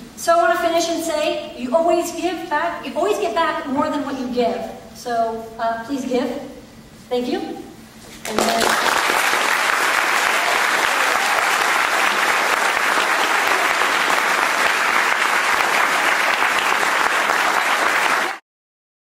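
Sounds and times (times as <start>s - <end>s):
audience applauding: 8.3s - 18.4s.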